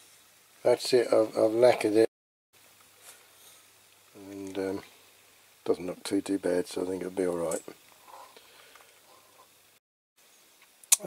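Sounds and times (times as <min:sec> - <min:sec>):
person speaking: 0:00.6 - 0:02.1, 0:04.2 - 0:04.9, 0:05.6 - 0:07.8.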